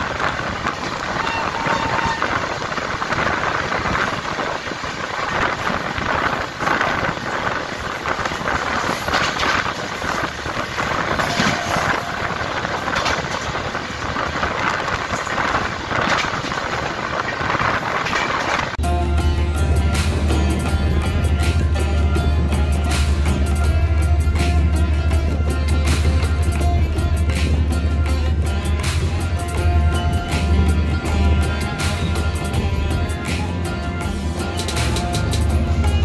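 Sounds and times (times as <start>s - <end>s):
train wheels on rails: 0.0s - 36.0s.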